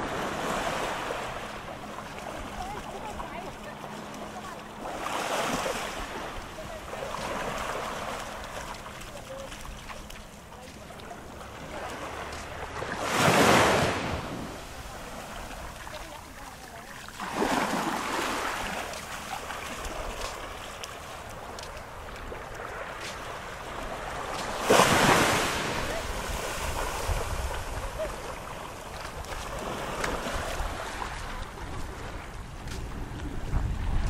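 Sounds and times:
waves breaking on beach: 0:00.0 - 0:34.0
wind rumble on microphone: 0:21.2 - 0:34.0.

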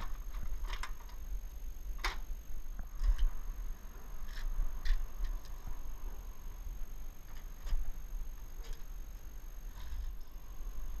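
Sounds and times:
aluminium ladder clicks and knocks: 0:00.0 - 0:01.2
steady low rumble: 0:00.0 - 0:11.0.

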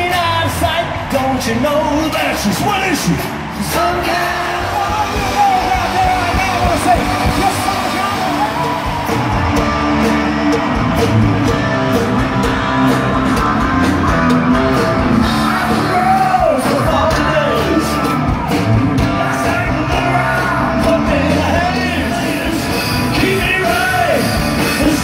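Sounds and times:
live rock band playing: 0:00.0 - 0:25.0
person singing: 0:19.0 - 0:25.0.

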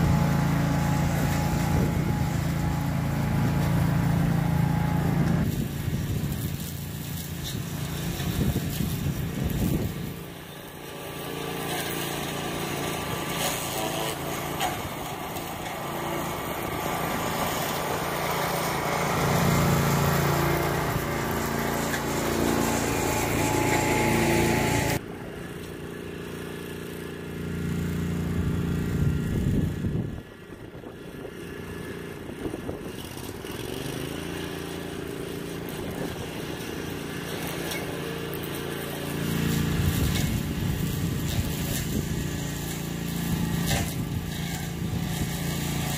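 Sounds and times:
small mower engine running: 0:00.0 - 0:45.9.

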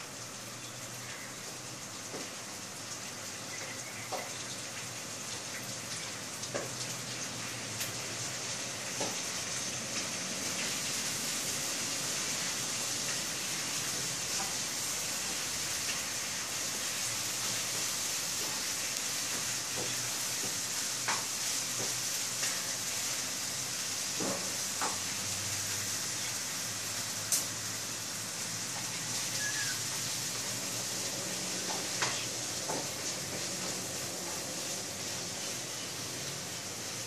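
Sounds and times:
faint ticks and taps: 0:17.7 - 0:22.6
high-pitched hiss: 0:29.0 - 0:30.0.

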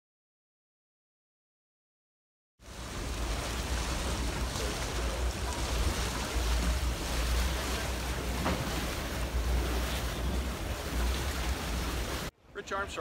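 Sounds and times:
wind rumbling on microphone: 0:02.6 - 0:12.3
churned water from boat propellers: 0:02.6 - 0:13.0.

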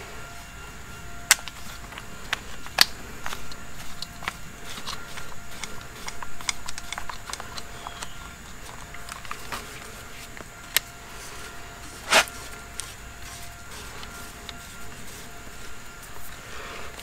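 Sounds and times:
plastic and metal clicks and rattles: 0:01.3 - 0:11.0.

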